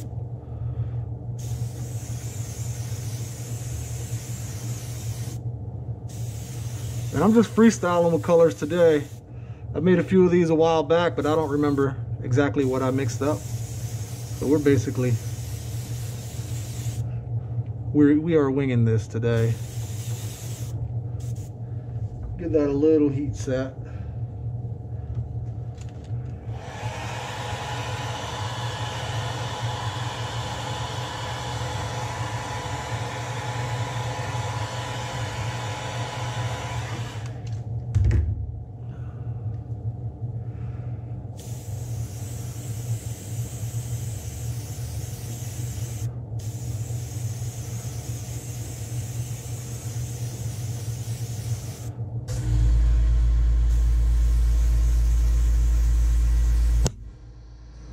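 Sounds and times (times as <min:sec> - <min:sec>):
hot-air blower hissing: 0:00.0 - 0:00.2, 0:00.8 - 0:17.3, 0:19.1 - 0:22.8, 0:26.4 - 0:37.6, 0:41.3 - 0:57.9
thump: 0:37.9 - 0:38.4.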